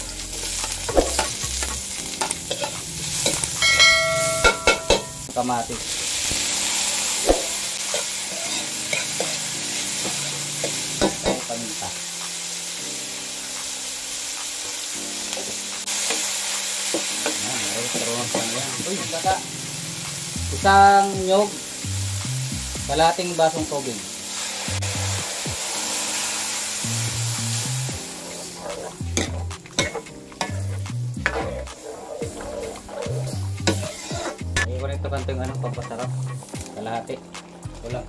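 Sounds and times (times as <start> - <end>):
food sizzling in hot oil: 0.0 - 34.8
metallic ringing: 3.6 - 5.4
metal ladle scraping a wok: 28.3 - 34.5.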